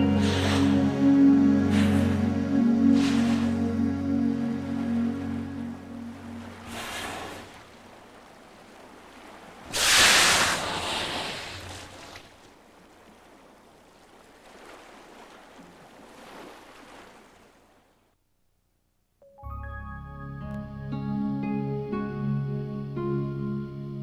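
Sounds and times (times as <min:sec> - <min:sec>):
whale blowing exhalation: 0:00.0 - 0:03.8, 0:06.4 - 0:07.6, 0:09.7 - 0:12.1
soft music: 0:00.0 - 0:06.8, 0:19.2 - 0:24.0
water washing: 0:01.6 - 0:17.3.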